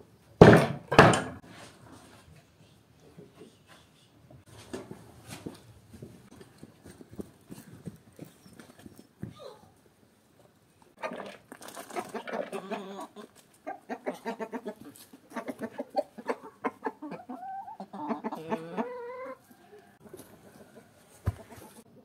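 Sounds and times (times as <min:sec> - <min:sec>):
hens clucking: 0:10.9 - 0:22.0.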